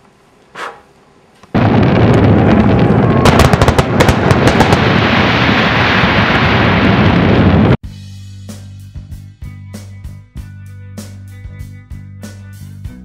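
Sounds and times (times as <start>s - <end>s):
fireworks crackling and banging: 1.5s - 7.8s.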